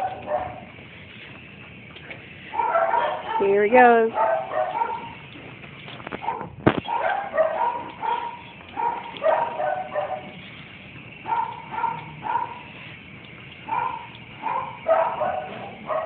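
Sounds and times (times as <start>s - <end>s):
dog barking and yipping: 0.0s - 0.7s, 2.5s - 5.2s, 6.2s - 10.5s, 11.2s - 12.9s, 13.6s - 16.0s.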